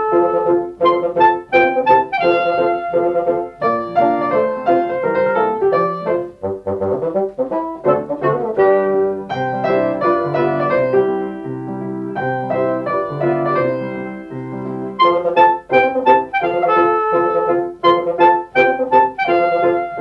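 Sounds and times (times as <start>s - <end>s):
brass playing: 0.0s - 20.0s
piano melody: 0.0s - 20.0s.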